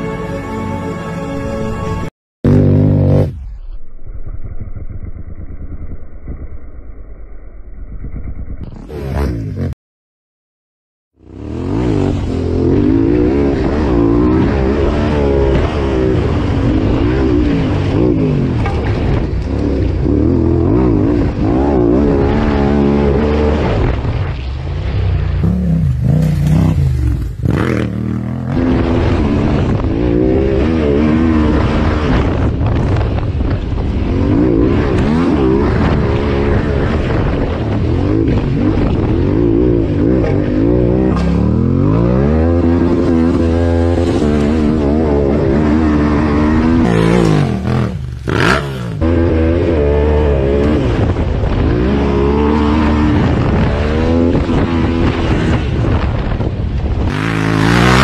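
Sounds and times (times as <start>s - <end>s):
motorcycle engine revving: 2.4s - 7.0s, 7.7s - 9.8s, 11.1s - 58.0s.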